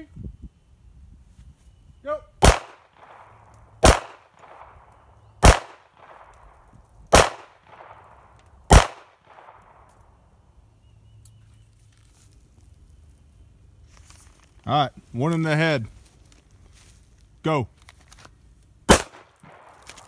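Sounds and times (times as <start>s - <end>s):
handgun shots with echo: 2.4s - 4.8s, 5.4s - 6.4s, 7.1s - 8.1s, 8.7s - 9.8s, 18.9s - 20.0s.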